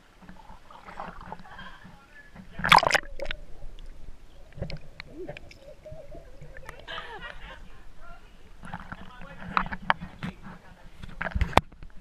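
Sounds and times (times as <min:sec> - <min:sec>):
water sloshing and gurgling: 0:00.0 - 0:12.0
loud splash into water: 0:02.6 - 0:03.4.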